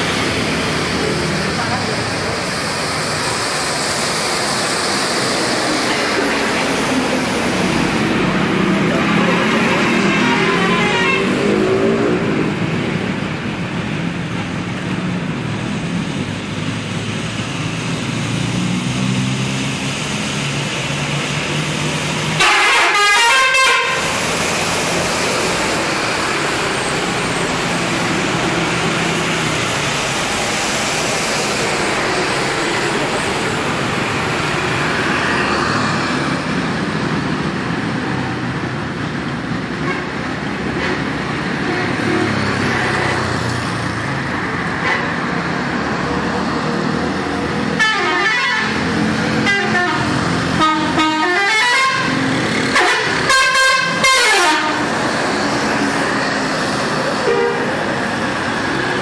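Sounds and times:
motorcycles passing: 0.0s - 22.4s, 23.6s - 59.0s
road traffic: 0.0s - 59.0s
bus air horns multi-tone: 9.0s - 11.7s, 22.4s - 24.2s, 40.7s - 42.4s, 47.7s - 55.0s, 57.2s - 57.9s.

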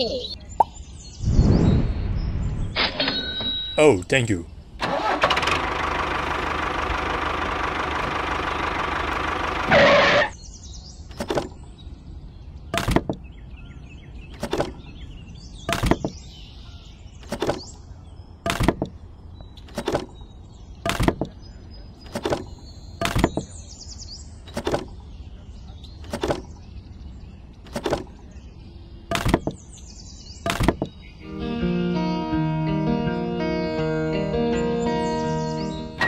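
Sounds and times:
tractor engine running: 4.8s - 10.4s.

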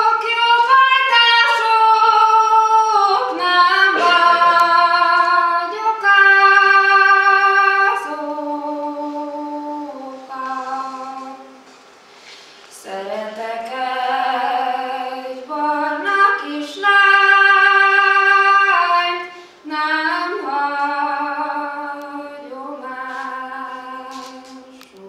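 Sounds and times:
woman singing unaccompanied: 0.0s - 11.6s, 12.7s - 25.0s.

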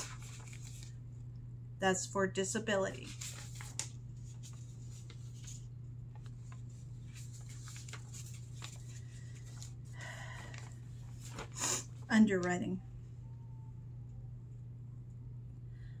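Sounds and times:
steady low hum: 0.0s - 16.0s
faint clicks and rustles: 3.1s - 12.5s.

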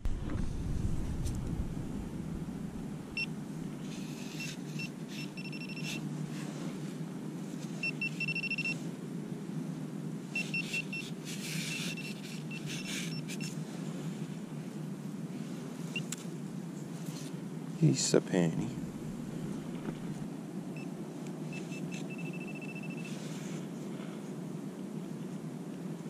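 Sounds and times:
pinpointer high beeps: 4.4s - 6.0s, 7.8s - 8.8s, 21.5s - 23.1s.

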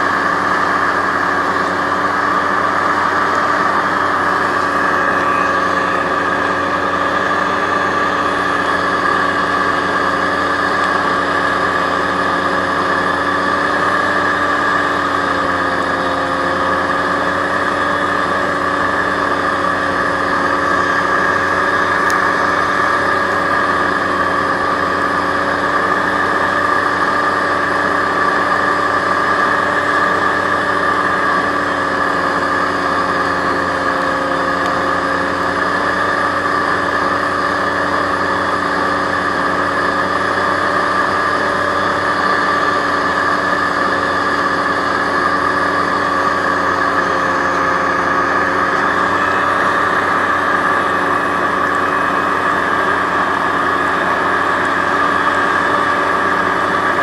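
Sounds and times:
hovercraft engine and propeller drone: 0.0s - 57.0s.

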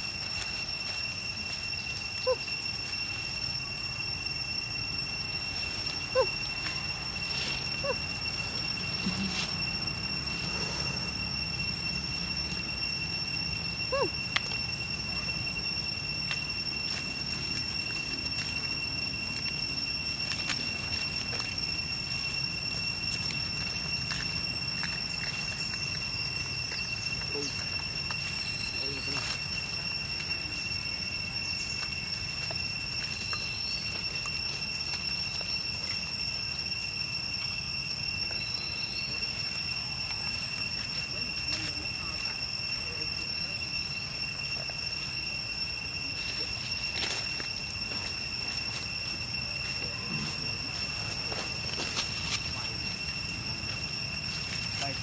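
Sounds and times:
high-pitched whine: 0.0s - 55.0s
squeaky animal call: 2.0s - 4.9s, 5.7s - 15.8s.

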